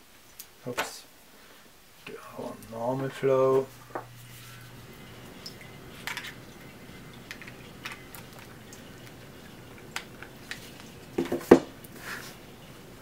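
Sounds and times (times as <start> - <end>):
water trickling from fountain: 4.3 - 13.0.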